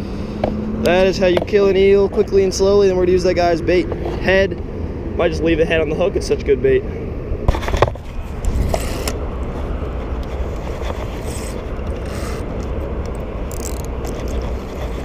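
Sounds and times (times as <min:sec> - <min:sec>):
city traffic rumble: 0:00.0 - 0:15.0
clicks and scrapes of fishing rig: 0:07.5 - 0:09.2, 0:09.9 - 0:15.0.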